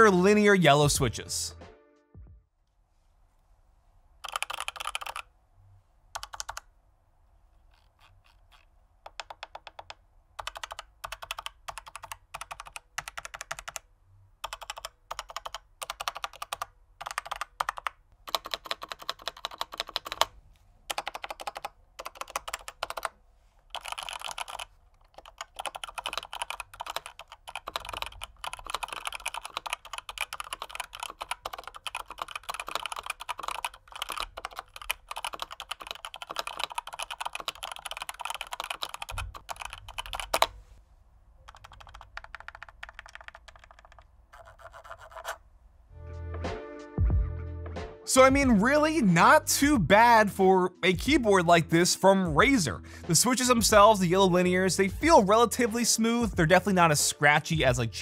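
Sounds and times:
muted mechanical keyboard typing: 0:04.2 - 0:05.3, 0:06.2 - 0:06.7, 0:07.7 - 0:40.5, 0:41.4 - 0:45.4.

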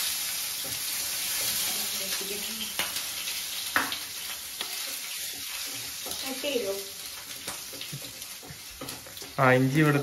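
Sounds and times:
garlic sizzling in hot oil: 0:00.0 - 0:10.0
spatula scraping a pan: 0:00.5 - 0:02.0, 0:04.2 - 0:09.4.

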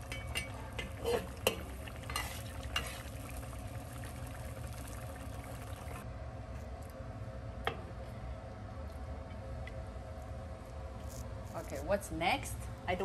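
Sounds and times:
soup simmering in a wok: 0:00.0 - 0:06.0.

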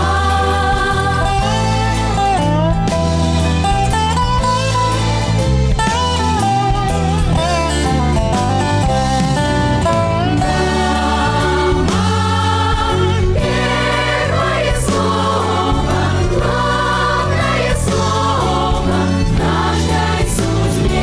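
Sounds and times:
group singing: 0:00.0 - 0:02.2, 0:10.4 - 0:21.0
instrumental backing with bass line: 0:00.0 - 0:21.0.

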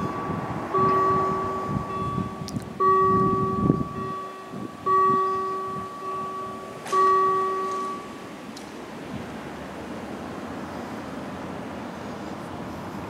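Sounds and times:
level crossing warning bell: 0:00.0 - 0:09.1.

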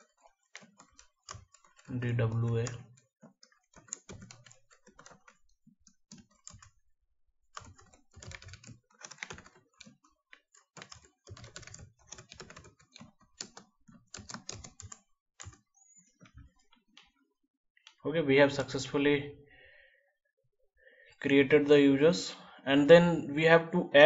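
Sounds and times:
faint keyboard typing: 0:00.0 - 0:06.8, 0:07.5 - 0:19.0.

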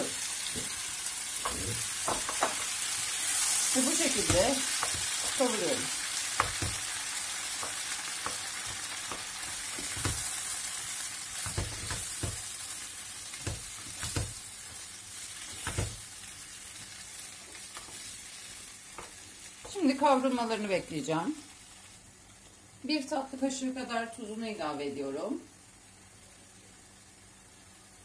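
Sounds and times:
vegetables sizzling in oil: 0:00.0 - 0:28.0
wooden spoon knocking on pot: 0:01.4 - 0:02.6, 0:11.4 - 0:12.5.

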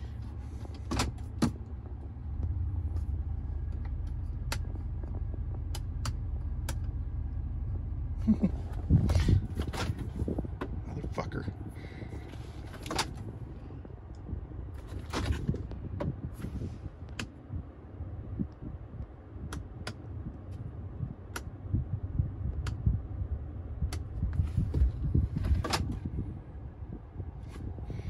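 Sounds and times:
low handling rumble: 0:00.0 - 0:28.0
sharp clicks of vehicle controls: 0:00.2 - 0:07.1, 0:08.6 - 0:10.8, 0:12.1 - 0:17.4, 0:18.5 - 0:21.7, 0:22.4 - 0:22.9, 0:23.8 - 0:26.2.

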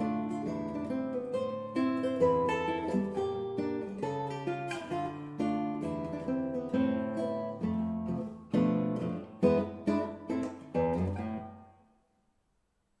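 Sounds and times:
classical guitar playing: 0:00.0 - 0:12.2.

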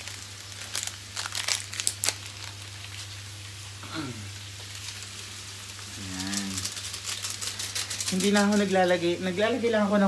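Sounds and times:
sachet crinkling and tearing: 0:00.0 - 0:03.2, 0:04.8 - 0:08.7.

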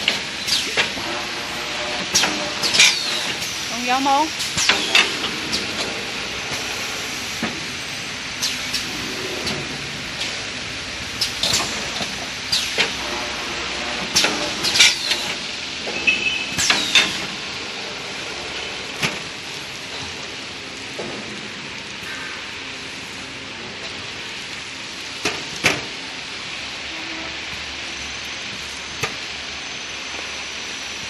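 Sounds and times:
pneumatic cylinders clacking: 0:00.0 - 0:03.7, 0:04.3 - 0:21.4
machine hissing steadily: 0:00.0 - 0:31.0.

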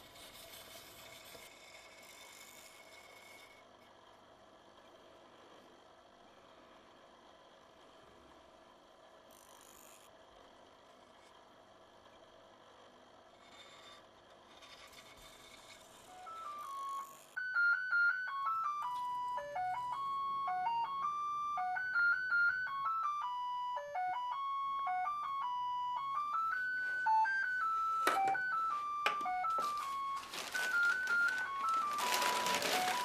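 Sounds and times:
loud rustling: 0:29.6 - 0:33.0.

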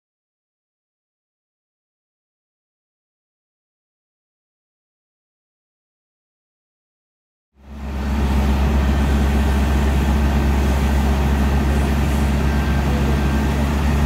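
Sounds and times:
diesel engine humming: 0:07.6 - 0:14.0.

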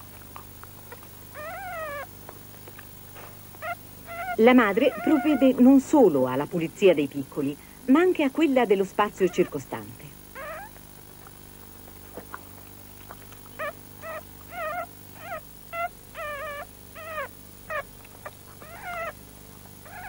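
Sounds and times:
puppies whimpering and squeaking: 0:00.9 - 0:02.1, 0:03.6 - 0:05.8, 0:10.4 - 0:10.8, 0:13.0 - 0:20.0.

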